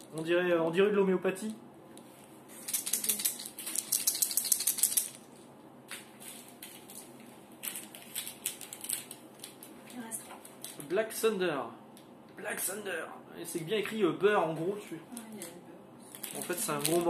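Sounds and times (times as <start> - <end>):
candy rattling in plastic tube: 2.6 - 5.2, 16.1 - 17.0.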